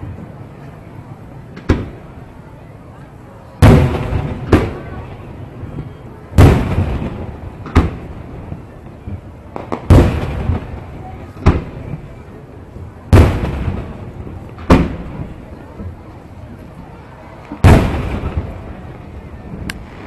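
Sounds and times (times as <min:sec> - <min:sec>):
fireworks booming: 0:00.0 - 0:02.5, 0:03.5 - 0:20.0
sharp firework cracks: 0:03.6 - 0:05.0, 0:06.4 - 0:08.8, 0:09.5 - 0:12.0, 0:13.1 - 0:15.3, 0:17.5 - 0:20.0.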